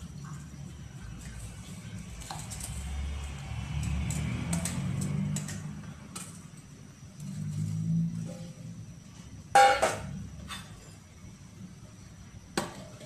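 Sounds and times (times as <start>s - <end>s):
gas burner rumbling: 0.0s - 13.0s
utensils clinking on steel pot: 9.5s - 11.0s.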